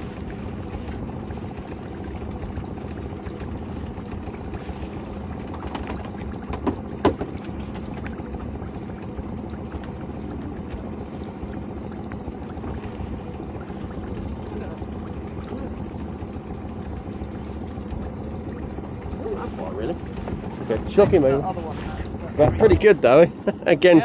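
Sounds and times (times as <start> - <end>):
boat engine idling: 0.0 - 24.0
water splashing against hull: 0.0 - 24.0
sharp knocks: 5.6 - 7.4.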